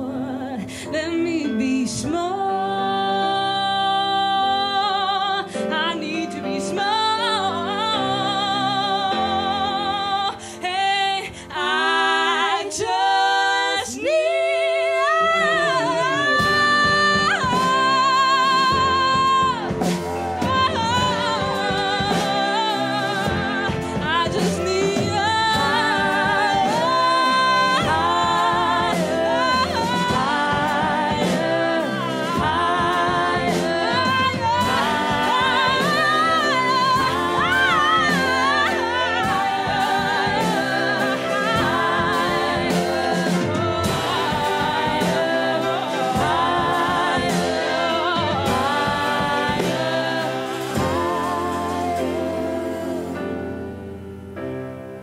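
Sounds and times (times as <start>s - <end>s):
women singing in harmony: 0.0s - 54.0s
piano: 0.0s - 55.0s
trumpet: 15.0s - 54.2s
saxophones: 15.2s - 54.5s
upright bass: 15.4s - 54.1s.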